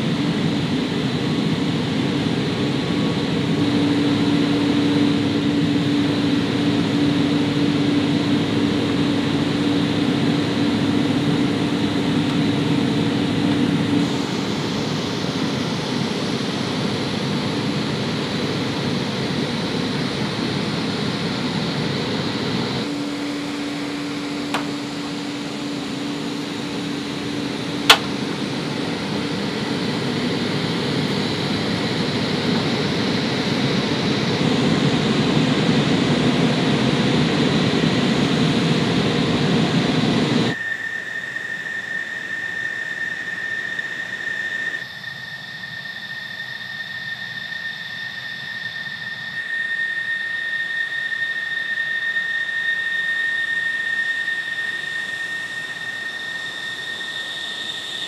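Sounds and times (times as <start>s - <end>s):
machinery drone: 0.0s - 58.0s
sharp click: 27.8s - 28.2s.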